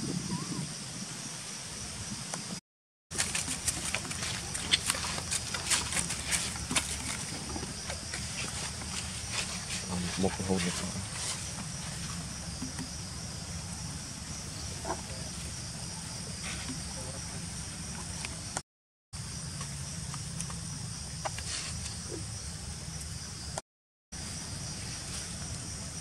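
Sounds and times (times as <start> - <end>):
insect chorus: 0.0 - 18.6, 19.2 - 26.0.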